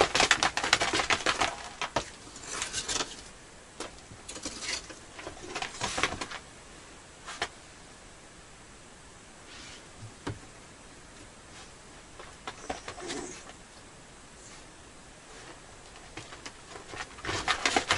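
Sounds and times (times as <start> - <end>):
person handling things and clothing: 0.0 - 6.4.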